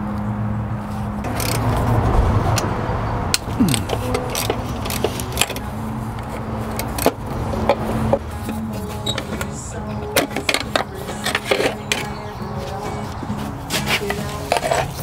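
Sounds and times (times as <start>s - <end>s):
wrench and metal fittings clinking: 1.3s - 1.7s, 3.7s - 7.2s, 8.4s - 12.3s.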